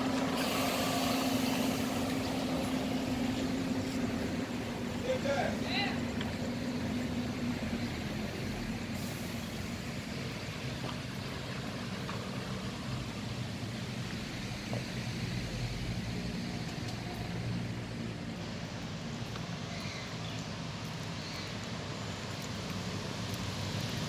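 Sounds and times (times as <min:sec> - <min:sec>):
bus engine idling: 0:00.0 - 0:19.7.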